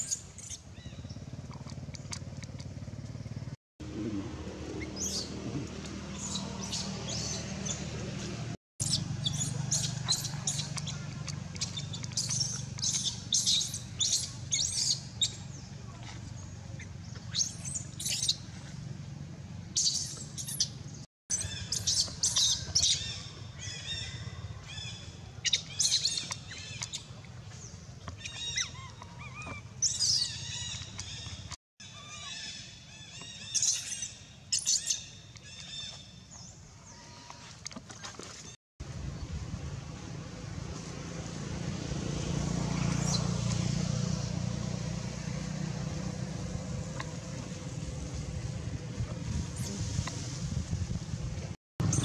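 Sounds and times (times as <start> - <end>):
low hum: 0.9 - 21.0, 38.8 - 52.0
high-pitched animal chirps and squeals: 28.2 - 31.2.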